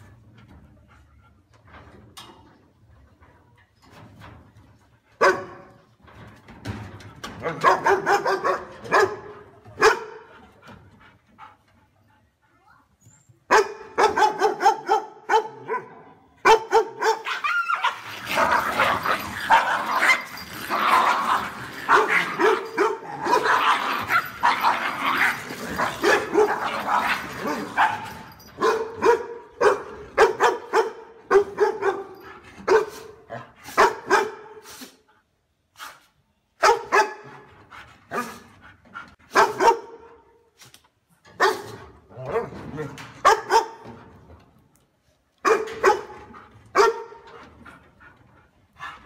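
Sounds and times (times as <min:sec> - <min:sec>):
dogs barking loudly: 0:07.4 - 0:10.3, 0:13.5 - 0:34.6, 0:36.6 - 0:37.5, 0:39.2 - 0:40.1, 0:41.3 - 0:42.5, 0:43.2 - 0:44.0, 0:45.4 - 0:47.6.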